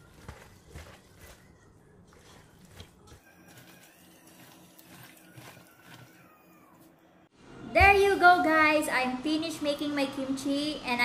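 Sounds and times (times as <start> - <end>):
hands squishing cabbage: 0.0 - 6.5.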